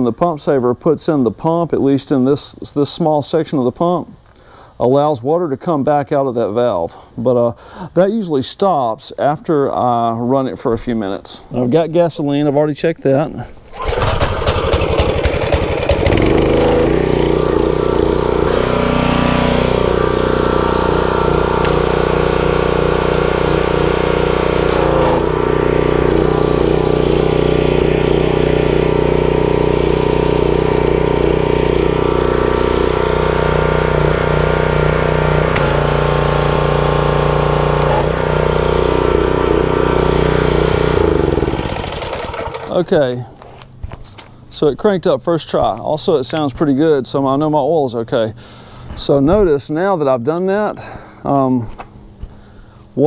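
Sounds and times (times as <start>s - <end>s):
small engine pull-started and running: 13.7s - 43.2s.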